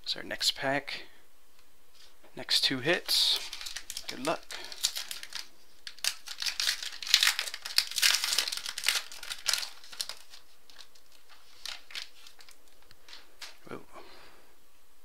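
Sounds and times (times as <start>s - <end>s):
foil pack crinkling and tearing: 3.2s - 13.6s.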